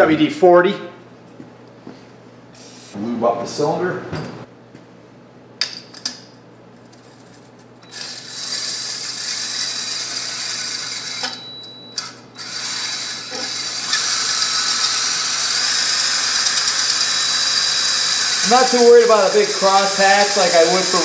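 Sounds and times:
drill spinning stone hone: 0:07.9 - 0:11.2, 0:12.4 - 0:21.0
stones scraping metal bore: 0:17.8 - 0:21.0.

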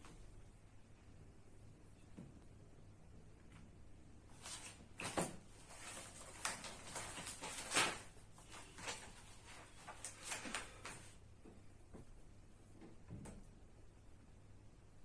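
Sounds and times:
book pages flipping: 0:04.4 - 0:11.2.

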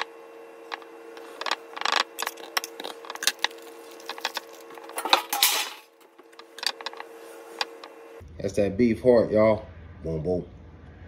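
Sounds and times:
plastic wrapping crinkling: 0:00.7 - 0:05.2.

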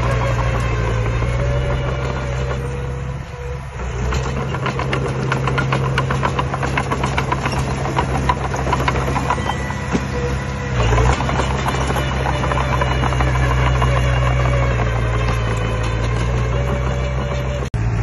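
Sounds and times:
diesel truck engines idling: 0:00.0 - 0:18.0
sharp clattering knocks: 0:04.1 - 0:10.2.

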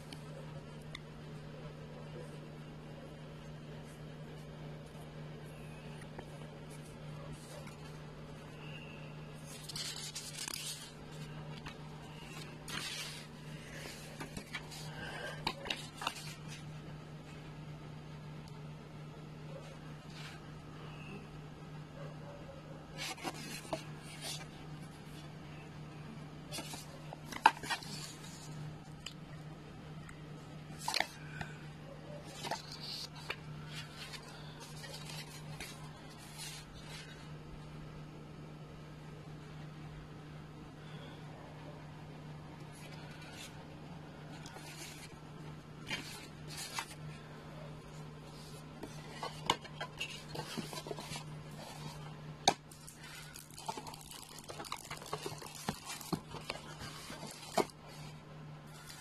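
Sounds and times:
low electrical hum: 0:00.0 - 0:59.0
paper pages rustling: 0:05.9 - 0:17.4, 0:23.0 - 0:25.3, 0:26.5 - 0:29.2, 0:30.7 - 0:31.5, 0:32.1 - 0:37.3, 0:42.6 - 0:43.6, 0:44.3 - 0:59.0
paper crinkles and taps: 0:09.5 - 0:14.8, 0:15.4 - 0:16.6, 0:26.5 - 0:28.4, 0:30.8 - 0:31.5, 0:32.3 - 0:36.6, 0:48.8 - 0:58.0.

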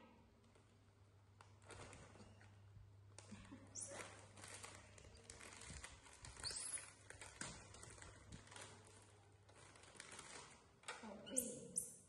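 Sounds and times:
plastic packets crinkling: 0:01.4 - 0:10.9
high squeak: 0:06.4 - 0:06.9.

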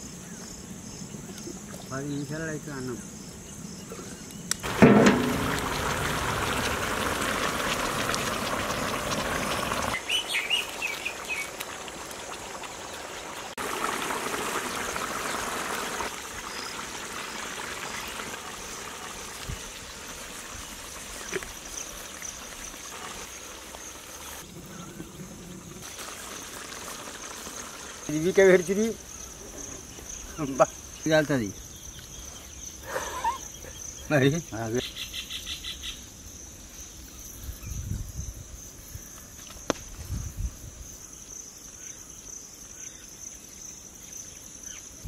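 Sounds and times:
outdoor ambience: 0:00.0 - 0:45.0
pot of curry bubbling: 0:04.6 - 0:30.0
birds chirping: 0:09.2 - 0:11.6, 0:28.1 - 0:36.1.

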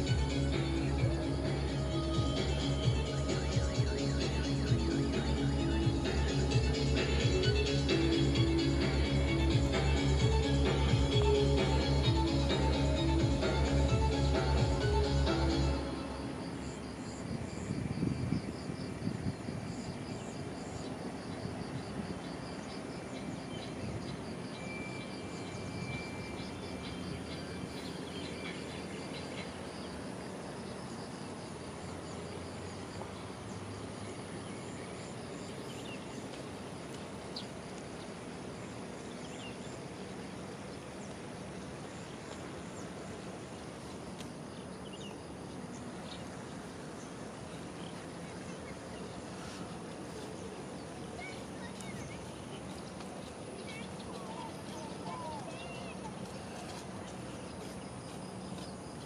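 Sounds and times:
insects chirping: 0:00.0 - 0:59.0
outdoor background noise: 0:00.0 - 0:59.0.

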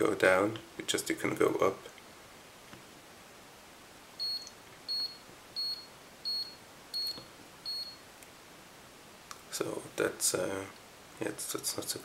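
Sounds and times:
short high key-press beeps: 0:04.2 - 0:08.0.

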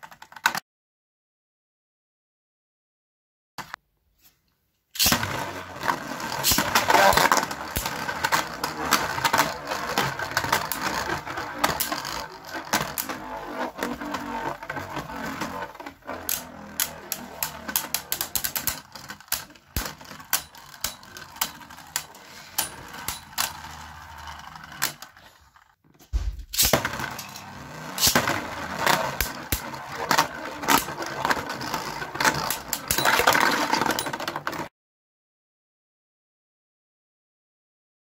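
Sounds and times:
spinning tops whirring and clashing: 0:05.0 - 0:25.6, 0:26.5 - 0:34.7.

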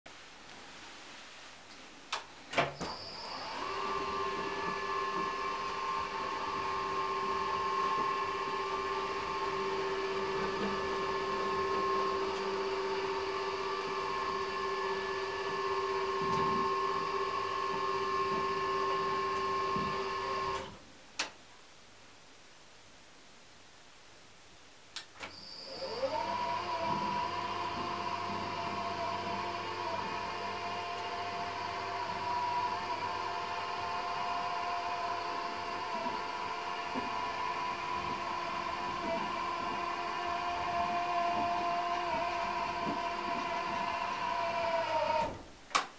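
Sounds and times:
motor whine: 0:25.3 - 0:45.4.

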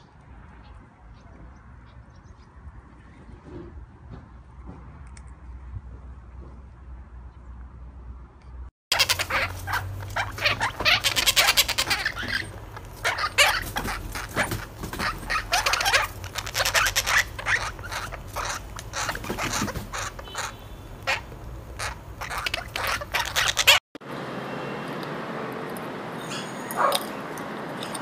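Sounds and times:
parrot chicks chirping: 0:08.9 - 0:23.8.

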